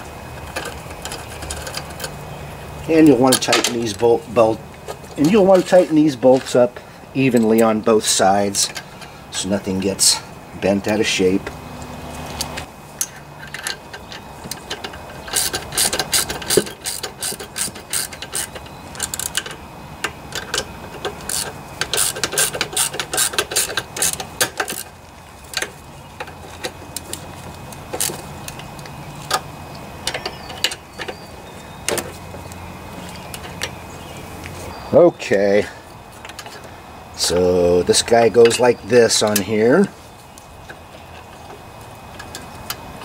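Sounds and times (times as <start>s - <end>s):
socket ratchet clicking: 13.5s - 24.9s.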